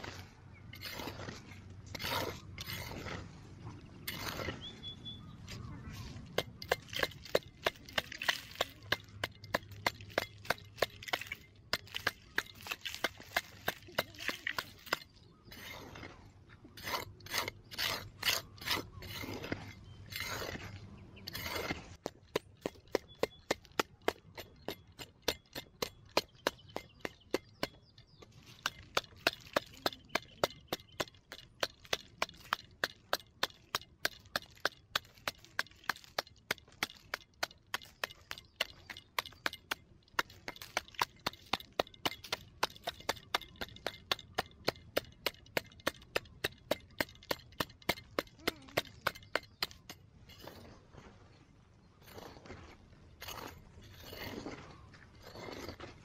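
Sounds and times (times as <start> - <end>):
metal shovel striking dry dirt: 0.0 - 51.3, 52.0 - 56.0
soil scraping: 0.0 - 56.0.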